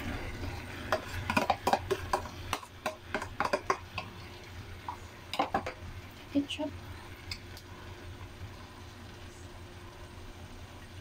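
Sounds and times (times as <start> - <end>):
low steady hum: 0.0 - 11.0
plastic container tapping frying pan: 0.9 - 4.2, 5.3 - 5.8.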